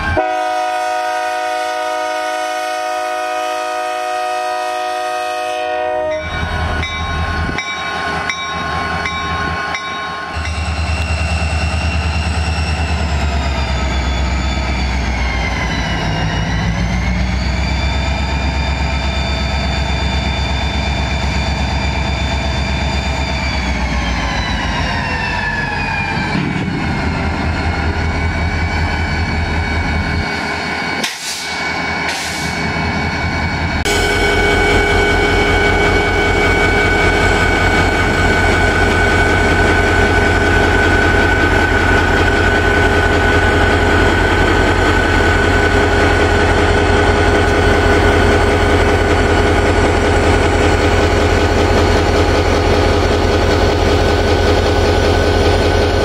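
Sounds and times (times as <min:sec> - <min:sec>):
locomotive horn chord: 0:00.0 - 0:06.4, 0:33.9 - 0:37.4
locomotive engine rumble and whine: 0:00.0 - 0:56.0.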